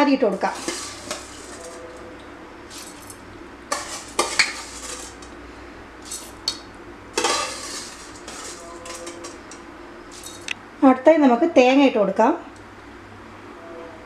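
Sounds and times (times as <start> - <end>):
metal spoon scraping steel jar: 0.4 - 2.0, 2.7 - 5.3, 6.0 - 6.6, 7.2 - 10.5.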